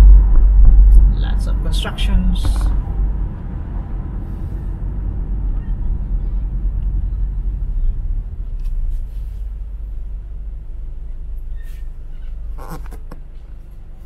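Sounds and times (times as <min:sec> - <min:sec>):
car engine and road rumble: 0:00.0 - 0:14.0.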